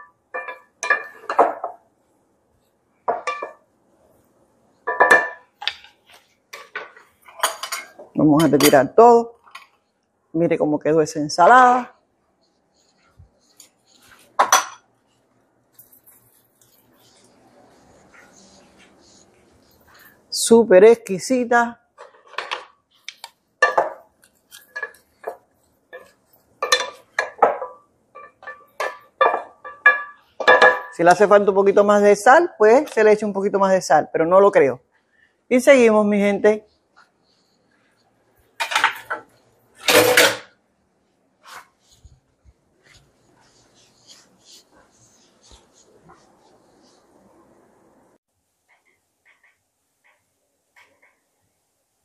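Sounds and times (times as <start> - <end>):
wooden spoons clinking glass bowl: 0.0 - 1.8, 3.1 - 3.6, 23.2 - 31.0.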